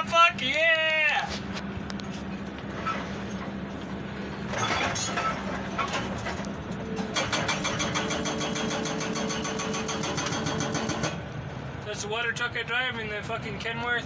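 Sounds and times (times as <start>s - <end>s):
diesel engine hum: 0.0s - 14.0s
metal clanks: 4.5s - 11.2s
hydraulic breaker hammering concrete: 7.0s - 11.2s.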